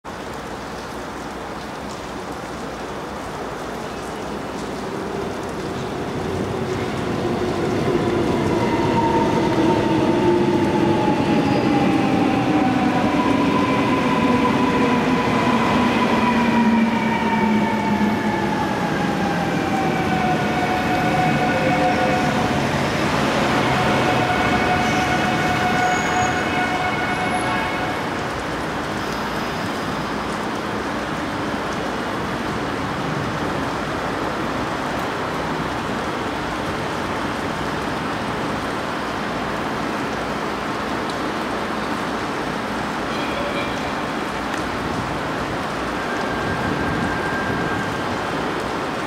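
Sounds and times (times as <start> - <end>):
electric train whining: 7.0 - 28.0.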